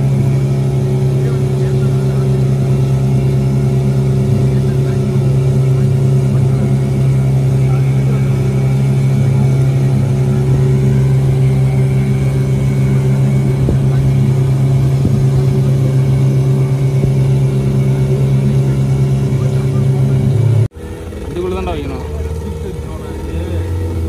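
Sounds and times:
engine droning steadily: 0:00.0 - 0:24.0.

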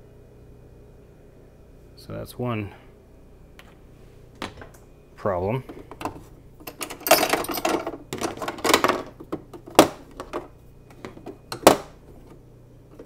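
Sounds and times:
small parts scraping and rattling: 0:05.7 - 0:10.5.

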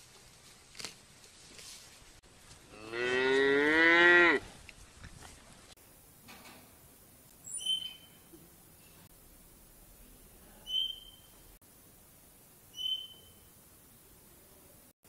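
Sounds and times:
chinchilla squeaks: 0:07.5 - 0:08.2, 0:10.7 - 0:11.3, 0:12.8 - 0:13.4.

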